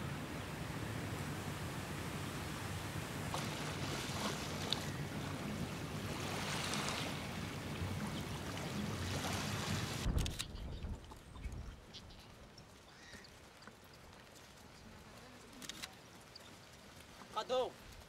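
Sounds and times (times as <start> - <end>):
waves: 0.0 - 10.2
wind over water: 0.0 - 11.9.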